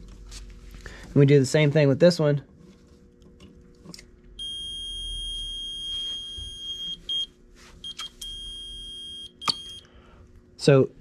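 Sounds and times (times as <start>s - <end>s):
multimeter continuity beeps: 4.4s - 9.9s.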